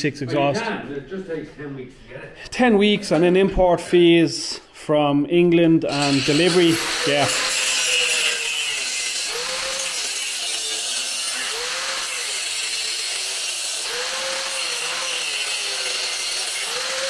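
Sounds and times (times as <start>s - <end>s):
angle grinder cutting steel pipe: 5.9s - 17.0s.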